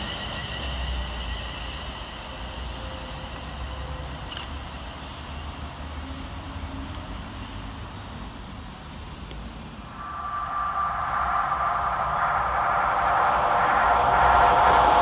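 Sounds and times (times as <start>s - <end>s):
approaching train rushing with whine: 0.0s - 5.8s, 9.6s - 15.0s
low rumble of train: 0.0s - 15.0s.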